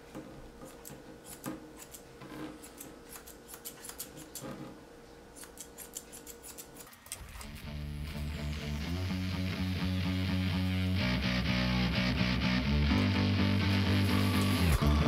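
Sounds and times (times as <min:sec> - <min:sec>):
shears snipping hair: 0:00.6 - 0:04.6, 0:05.3 - 0:07.6
rock music with electric guitar: 0:07.4 - 0:15.0.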